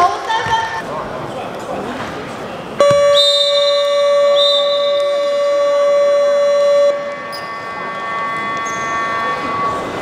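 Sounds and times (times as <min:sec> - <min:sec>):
game clock buzzer: 0:02.8 - 0:10.0
short high whistle blasts: 0:02.9 - 0:10.0.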